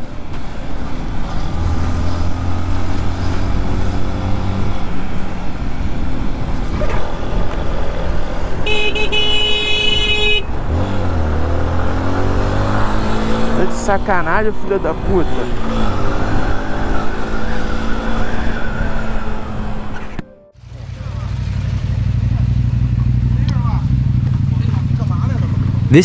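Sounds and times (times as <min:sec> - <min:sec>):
vehicle horn blast: 0:08.6 - 0:10.5
motorcycle engine running: 0:20.6 - 0:26.0.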